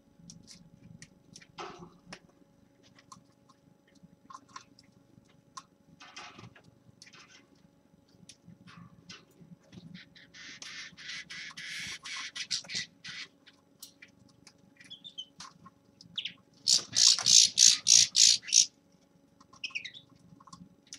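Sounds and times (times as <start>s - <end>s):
linnet twittering song: 14.8s - 15.3s, 16.2s - 18.7s
bird short calls: 16.7s - 18.7s.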